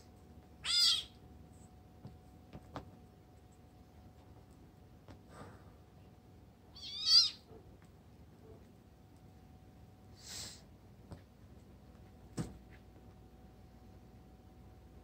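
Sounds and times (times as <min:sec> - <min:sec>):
kitten meowing high-pitched: 0:00.6 - 0:01.2, 0:06.8 - 0:07.5
breathy hiss: 0:10.1 - 0:10.8.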